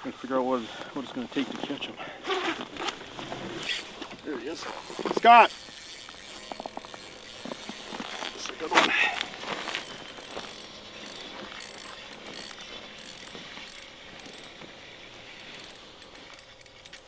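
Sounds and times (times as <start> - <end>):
fishing reel ticking and whirring: 2.5 - 17.0.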